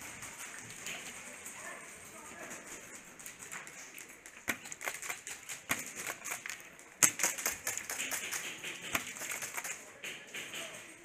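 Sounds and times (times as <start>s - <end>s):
sharp clicks and knocks: 2.9s - 11.0s.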